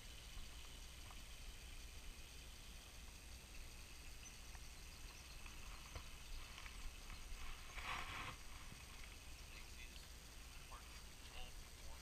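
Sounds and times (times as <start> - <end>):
short rustling: 5.7 - 9.2.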